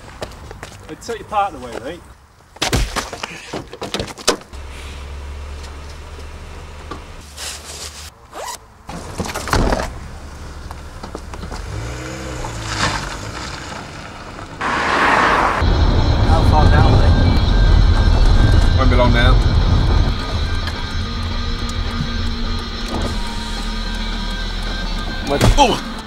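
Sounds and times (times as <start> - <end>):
car engine running: 4.6 - 7.2, 15.5 - 26.0
car engine revving: 9.9 - 26.0.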